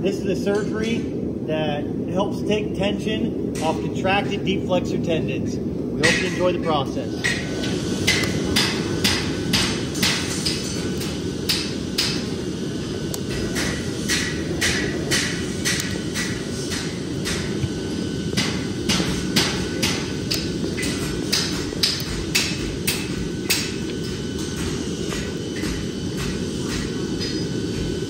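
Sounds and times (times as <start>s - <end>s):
low shop rumble: 0.0s - 28.0s
metal-on-metal strikes: 6.0s - 6.6s.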